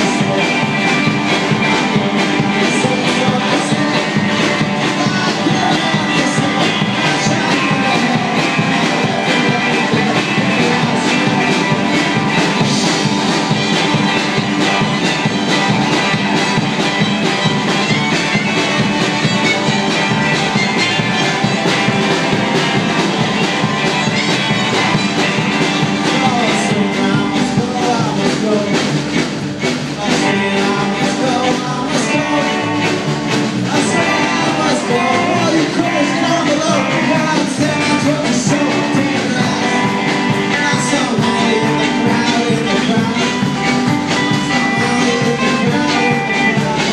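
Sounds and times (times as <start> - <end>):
acoustic guitar: 0.0 - 46.9
drum kit: 0.0 - 46.9
electric guitar: 0.0 - 46.9
person singing: 0.0 - 46.9
fiddle: 14.2 - 26.4.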